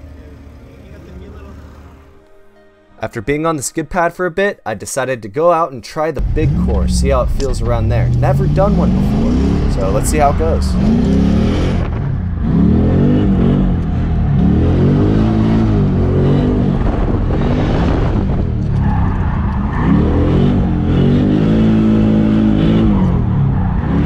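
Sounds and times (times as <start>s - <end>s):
car engine revving: 6.2s - 24.0s.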